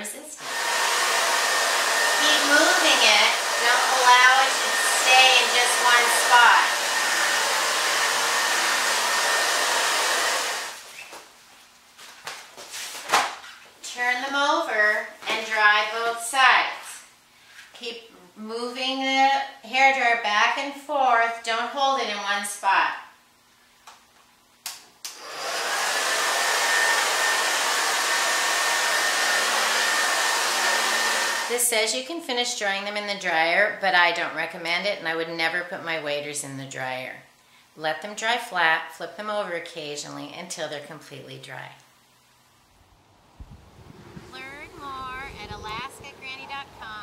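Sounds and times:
hair dryer blowing: 0.0s - 10.9s, 25.1s - 31.7s, 43.4s - 47.0s
hair dryer switch clicks: 24.7s - 25.2s.

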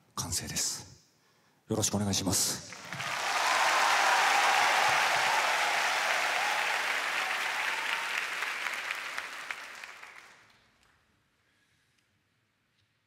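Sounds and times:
audience applauding: 2.7s - 10.6s.

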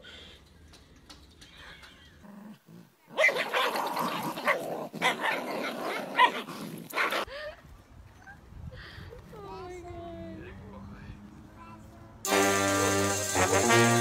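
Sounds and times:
dogs growling: 2.2s - 7.3s
dogs barking: 3.2s - 7.3s.

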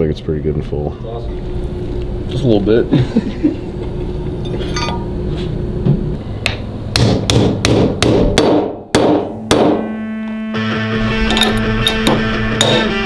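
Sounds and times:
hammer striking metal: 4.7s - 5.1s, 6.5s - 10.0s, 11.2s - 13.0s
background music: 9.3s - 13.0s.

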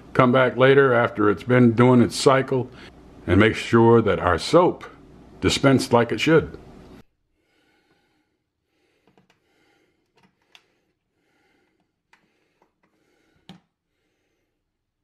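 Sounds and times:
faint clicks and taps of screws: 9.0s - 9.4s.

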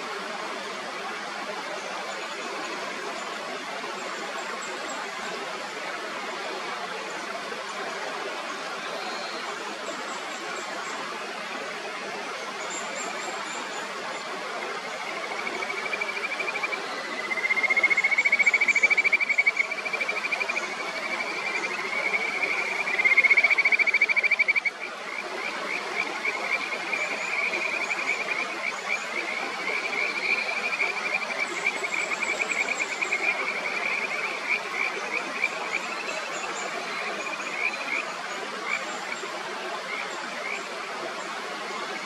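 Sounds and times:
mountain stream rushing: 0.0s - 42.0s
frogs calling in pulsed trills: 14.6s - 39.2s.

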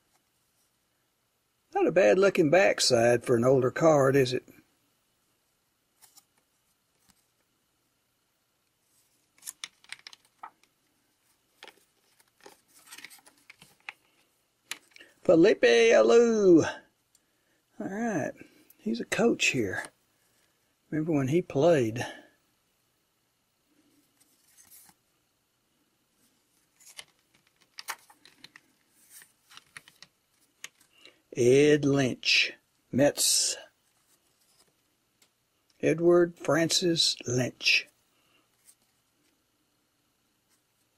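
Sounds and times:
cards sliding and tapping: 8.9s - 10.8s, 11.5s - 15.1s, 26.5s - 31.2s
crisp card clicks: 26.8s - 31.1s.

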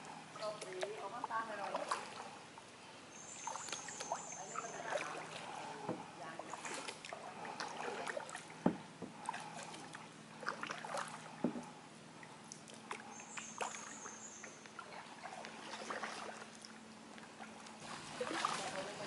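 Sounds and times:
paddle strokes in water: 0.0s - 2.4s, 3.2s - 19.0s
water dripping off paddle: 0.4s - 2.3s, 3.3s - 18.9s
short dull knocks: 8.6s - 9.2s, 11.4s - 11.7s.

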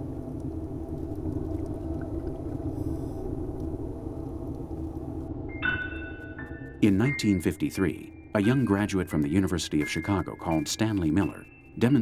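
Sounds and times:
low underwater rumble: 0.0s - 5.5s
faint steady hum: 0.0s - 9.7s.

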